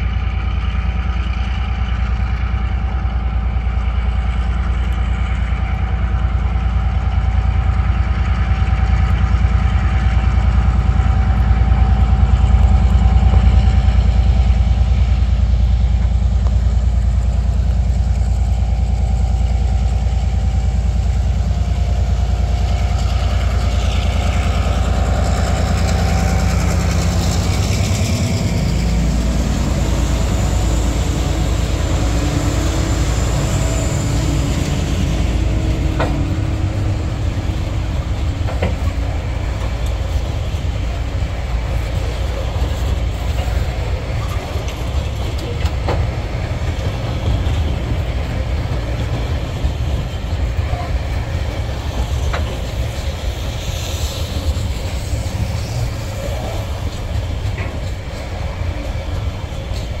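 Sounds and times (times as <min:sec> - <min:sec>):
freight wagons rumbling: 0:00.0 - 1:00.0
locomotive diesel engine: 0:00.0 - 1:00.0
wheels clicking over rail joints: 0:31.1 - 1:00.0.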